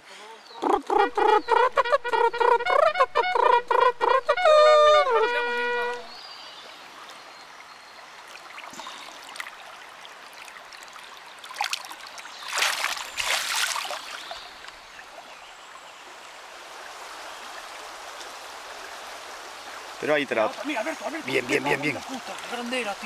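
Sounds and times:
river water running: 0.0 - 23.0
splashing in water: 8.2 - 14.8.

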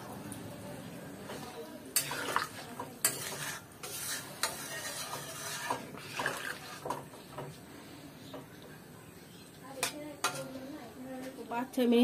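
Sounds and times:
metal spatula scraping a pan: 1.3 - 7.6, 9.8 - 10.6.

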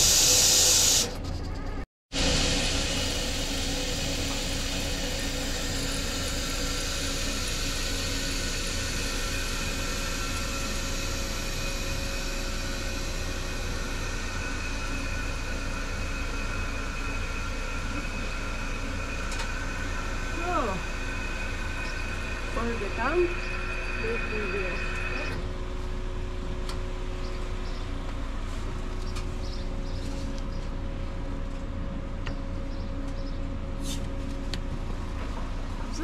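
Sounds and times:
gas rushing hiss: 0.0 - 1.2, 2.2 - 25.4
low hum: 0.0 - 36.0
faint steady tones: 3.8 - 25.7.

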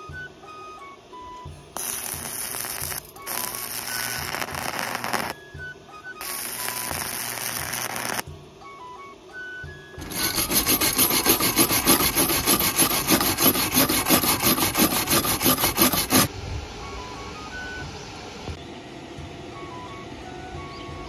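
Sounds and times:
arc welding crackle: 1.8 - 5.4, 6.2 - 8.3, 10.0 - 16.3.

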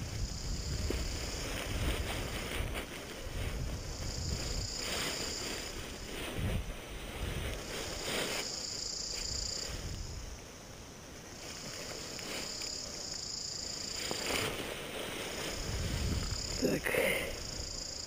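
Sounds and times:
wind buffeting microphone: 0.0 - 8.3, 9.2 - 10.4, 14.5 - 18.0
fabric and lines rustling: 0.4 - 10.2, 11.4 - 16.7.

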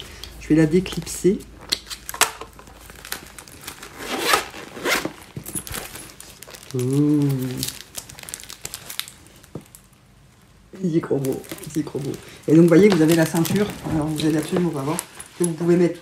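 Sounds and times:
pouch rustling and scraping: 2.8 - 6.7, 11.3 - 16.0
person humming: 6.7 - 7.7.

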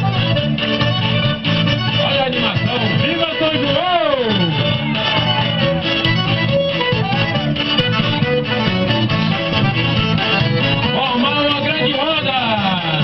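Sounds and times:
lively dance music: 0.0 - 13.0.

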